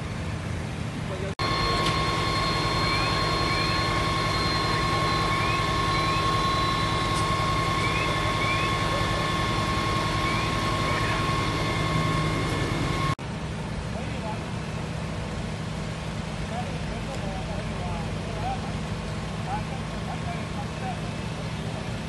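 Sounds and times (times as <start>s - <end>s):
diesel engine high whine: 0.0s - 22.0s
faint rising chirps: 1.4s - 13.2s.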